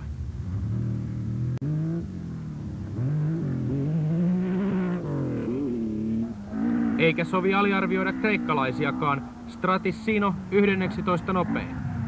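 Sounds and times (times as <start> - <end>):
rally car engine at full throttle: 0.0 - 12.0.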